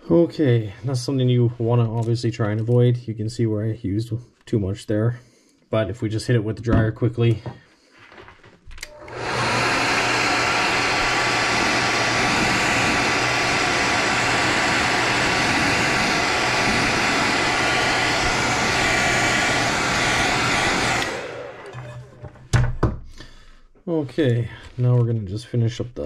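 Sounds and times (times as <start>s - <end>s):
hair dryer blowing: 8.8s - 22.3s.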